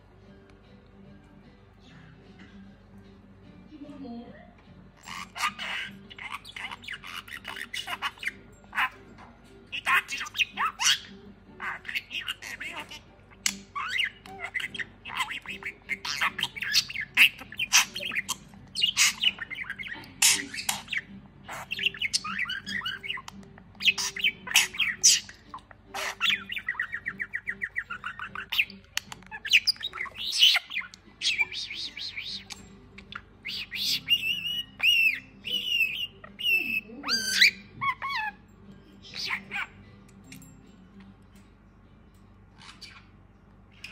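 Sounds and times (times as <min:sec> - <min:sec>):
budgerigar chattering and warbling: 0:05.0 - 0:38.4, 0:39.0 - 0:39.8.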